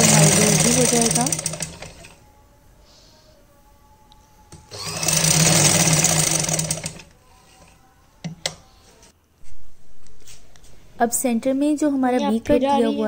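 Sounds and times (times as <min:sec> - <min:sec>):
sewing machine running: 0:00.0 - 0:02.2, 0:04.7 - 0:07.1.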